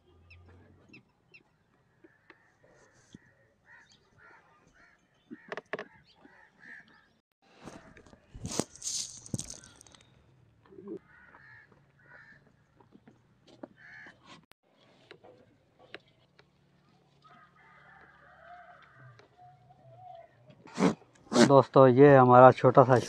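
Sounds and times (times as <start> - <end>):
rustling scrape: 7.6 - 10.0.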